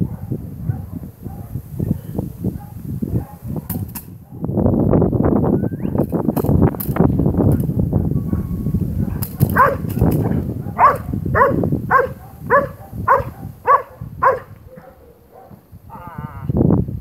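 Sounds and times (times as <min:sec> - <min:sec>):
dog barking: 0:00.0 - 0:04.5, 0:08.0 - 0:15.7.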